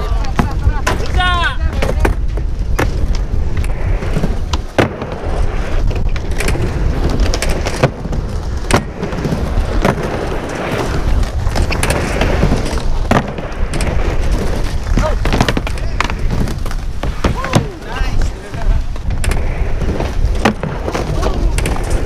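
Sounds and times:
skateboard wheels rolling: 0:00.0 - 0:22.0.

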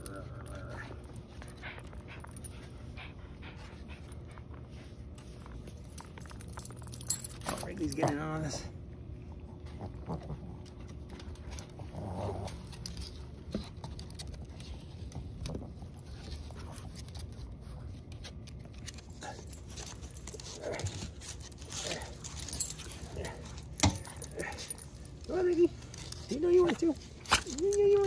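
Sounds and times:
dog sounds: 0:15.1 - 0:28.0.

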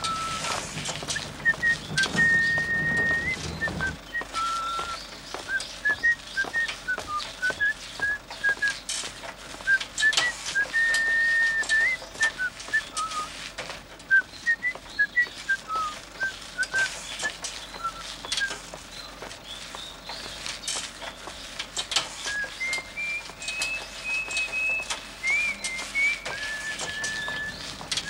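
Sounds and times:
person whistling a tune: 0:00.0 - 0:08.8, 0:09.6 - 0:13.3, 0:14.1 - 0:18.6, 0:22.3 - 0:27.7.

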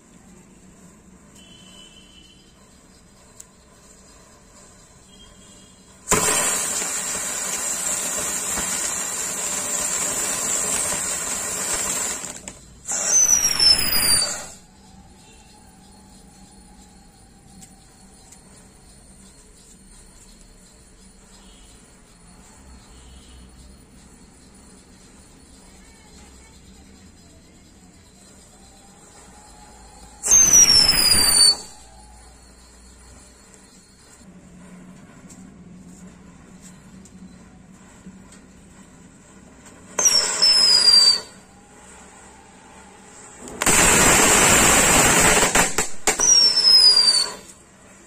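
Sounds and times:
firework fountain hissing: 0:00.4 - 0:17.0, 0:27.8 - 0:34.8, 0:37.7 - 0:48.0
falling whistles: 0:01.3 - 0:34.3, 0:36.6 - 0:48.0.

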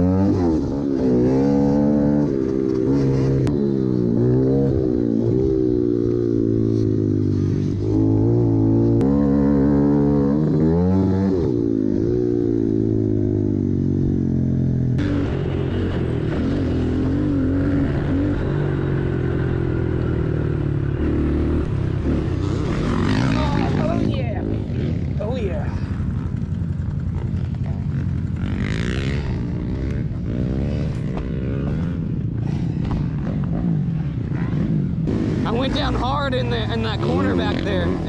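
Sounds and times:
dirt bike engine revving: 0:00.0 - 0:38.0.

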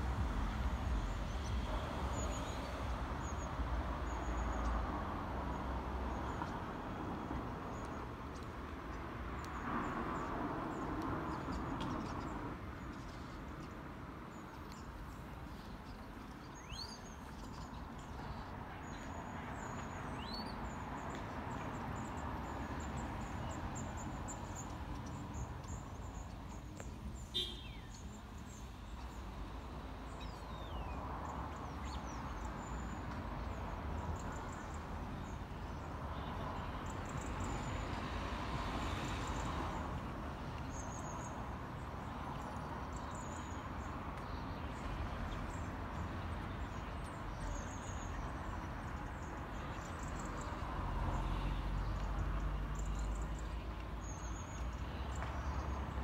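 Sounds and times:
birds chirping: 0:21.7 - 0:29.2.

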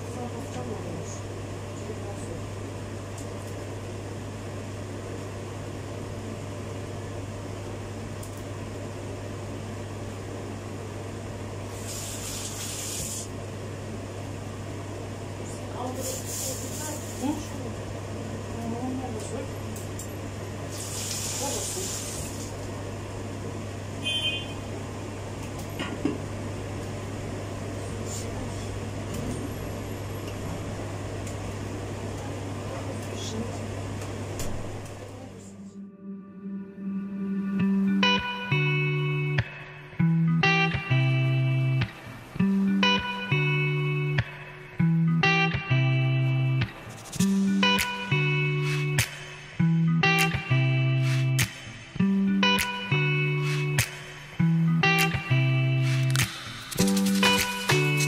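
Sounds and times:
low mechanical appliance hum: 0:00.0 - 0:53.5.

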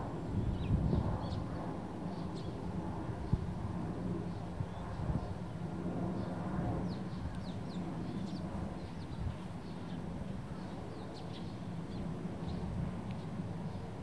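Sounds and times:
sparrows chirping: 0:02.1 - 0:02.6, 0:06.2 - 0:13.8.

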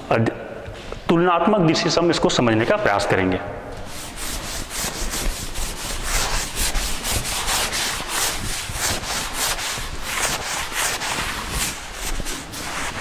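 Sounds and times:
duster rubbing blackboard: 0:03.8 - 0:13.0.

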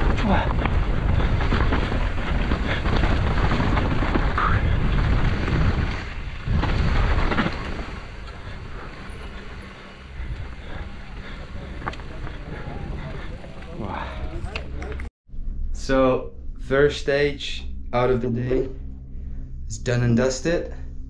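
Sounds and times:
tyres rolling over dirt: 0:00.0 - 0:15.0
wind buffeting microphone: 0:00.0 - 0:15.0
bike rattling and knocking: 0:00.0 - 0:15.1.

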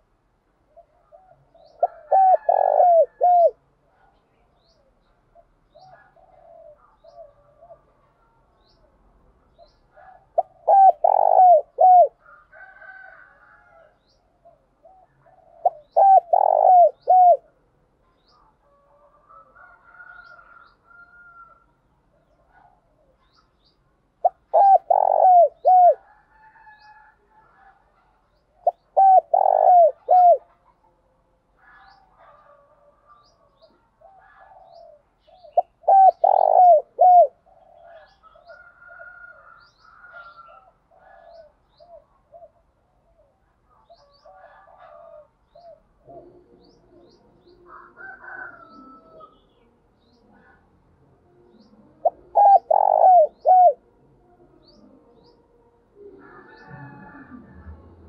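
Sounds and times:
dove cooing: 0:00.7 - 0:03.6, 0:05.4 - 0:08.0, 0:09.6 - 0:17.6, 0:24.2 - 0:27.9, 0:28.6 - 0:30.8, 0:31.6 - 0:58.0.

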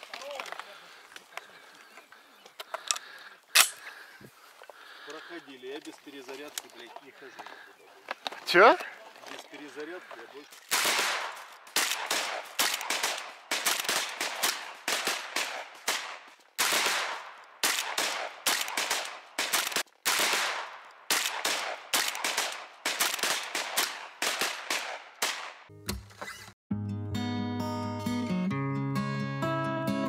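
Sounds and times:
shotgun firing: 0:10.7 - 0:25.7.

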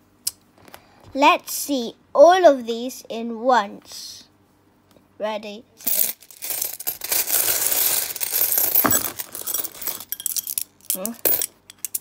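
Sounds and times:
coins clinking: 0:05.8 - 0:12.0.

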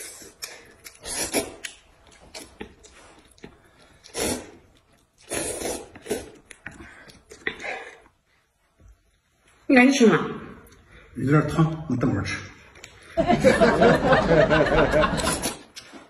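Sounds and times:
person slurping noodles: 0:00.0 - 0:08.1, 0:15.2 - 0:15.7.

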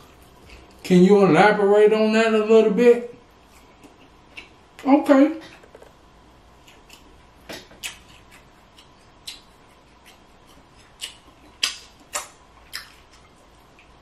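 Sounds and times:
wet chewing mouth smacks: 0:06.6 - 0:14.0.

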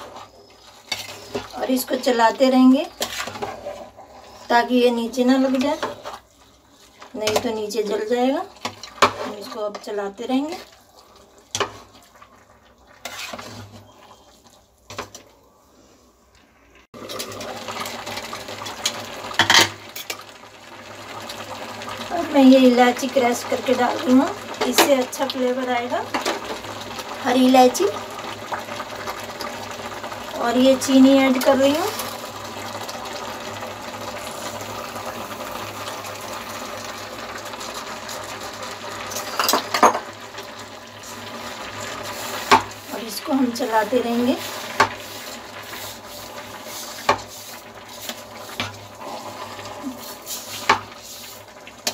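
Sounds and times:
metal spatula scraping a pot: 0:00.0 - 0:09.8, 0:13.0 - 0:14.6
food hissing in cooker: 0:20.6 - 0:51.9
hiss of cooking mixture: 0:40.9 - 0:51.7.

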